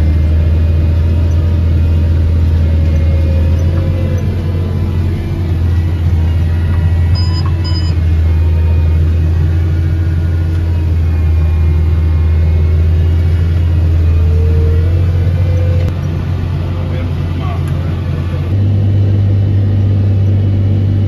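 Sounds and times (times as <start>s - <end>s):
tractor engine drone: 0.0s - 21.0s
short electronic beeps: 5.8s - 9.0s.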